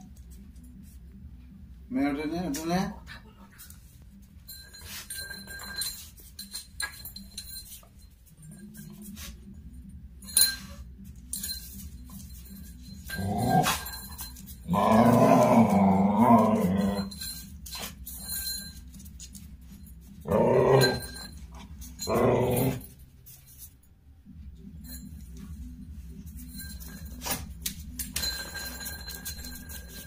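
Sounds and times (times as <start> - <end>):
dog growling: 14.6 - 17.1, 20.2 - 21.3, 22.0 - 22.9.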